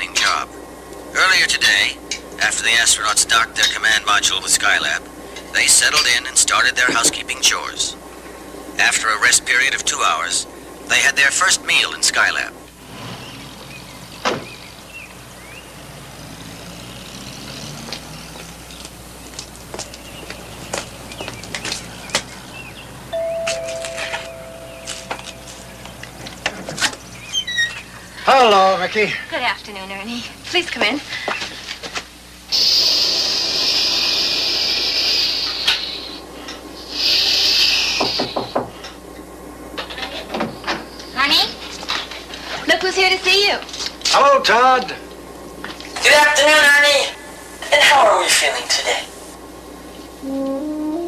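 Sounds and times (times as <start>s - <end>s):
low steady rumble: 0.0s - 31.3s
car door shutting: 14.2s - 14.7s
loud hissing bursts: 32.5s - 38.7s.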